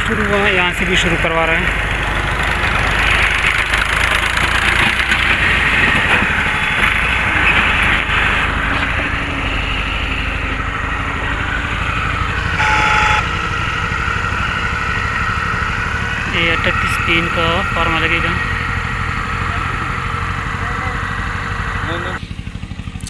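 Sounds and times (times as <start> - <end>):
hydraulic pump running: 0.0 - 23.0
short steady whine: 6.1 - 13.6.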